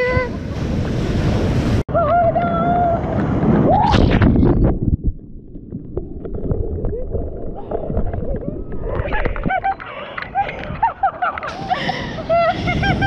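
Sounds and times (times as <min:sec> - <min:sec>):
muffled churning surf: 0:00.0 - 0:03.9, 0:06.9 - 0:13.0.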